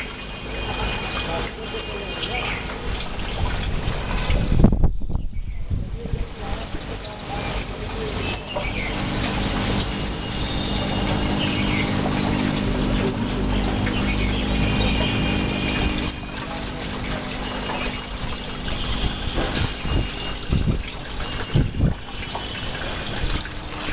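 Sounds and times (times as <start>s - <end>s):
water gushing into a tank: 0.0s - 23.9s
steady low hum: 8.7s - 21.3s.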